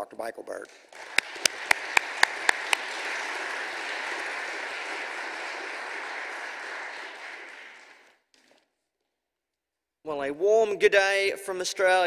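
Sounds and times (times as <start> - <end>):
loud close claps: 0.5 - 8.6
audience applauding: 0.7 - 8.2.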